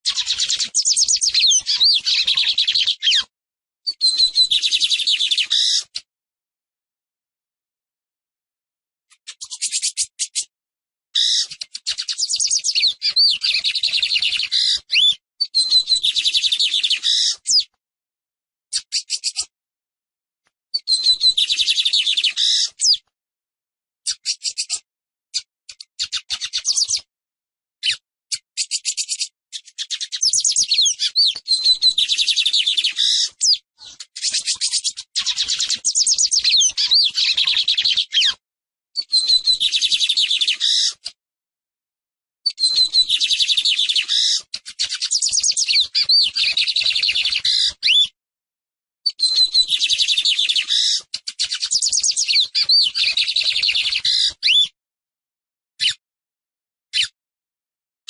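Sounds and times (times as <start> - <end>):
bird singing high-pitched notes: 0.1 - 3.3, 3.9 - 5.8, 11.2 - 17.7, 20.8 - 23.0, 25.4 - 27.1, 27.8 - 38.4, 39.0 - 41.0, 42.5 - 48.2, 49.1 - 54.8.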